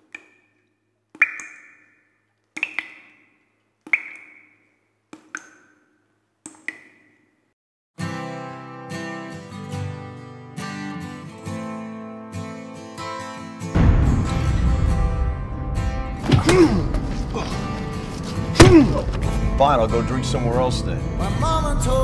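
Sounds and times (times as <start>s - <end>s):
guitar music with low bass: 8.0s - 22.0s.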